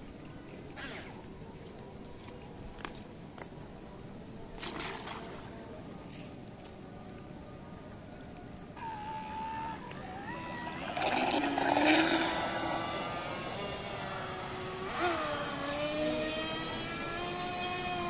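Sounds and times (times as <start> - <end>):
electric motor whining: 8.8 - 18.0
propeller spray and water rushing: 8.9 - 17.8.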